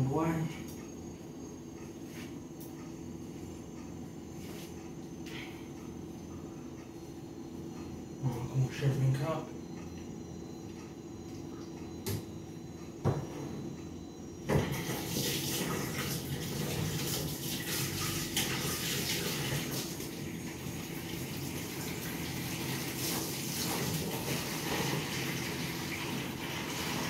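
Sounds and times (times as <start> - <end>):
water running into sink: 14.6 - 20.1.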